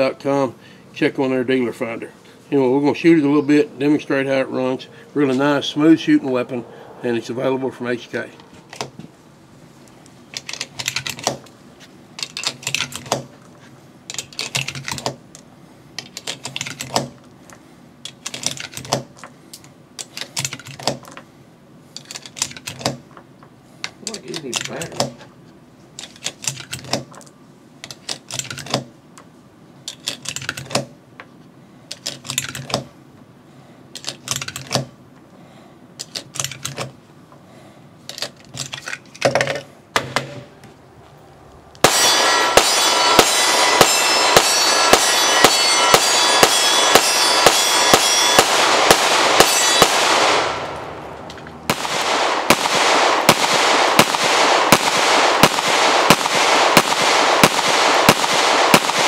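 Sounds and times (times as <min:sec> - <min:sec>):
cartridges clicking into magazine: 0:16.0 - 0:17.1, 0:34.0 - 0:34.8, 0:36.0 - 0:36.9
pistol shots: 0:41.8 - 0:59.0.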